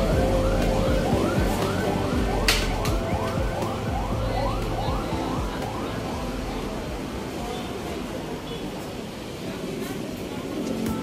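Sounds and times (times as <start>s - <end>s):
siren-like sweep: 0.0s - 6.5s
background music: 0.0s - 7.5s.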